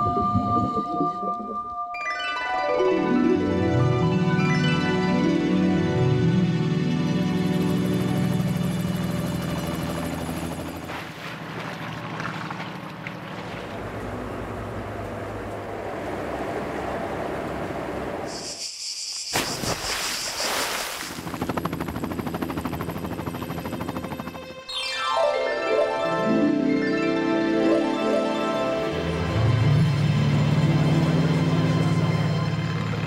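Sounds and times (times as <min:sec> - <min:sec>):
background music: 0:00.0 - 0:09.9, 0:24.1 - 0:33.0
helicopter engine and rotor: 0:05.3 - 0:10.9, 0:21.2 - 0:24.8, 0:28.9 - 0:33.0.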